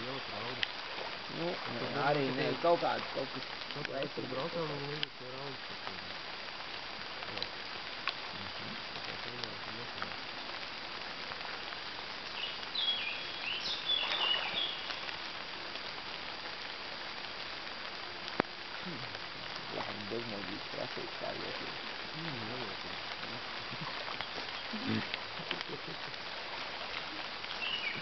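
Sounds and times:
light rain on leaves: 0:00.0 - 0:28.0
songbird singing: 0:12.2 - 0:15.4, 0:21.5 - 0:28.0.

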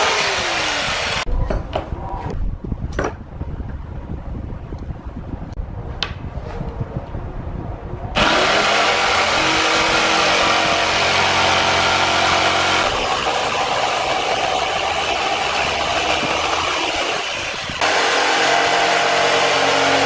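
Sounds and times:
electric jigsaw cutting wood: 0:00.0 - 0:01.2, 0:08.2 - 0:20.0.

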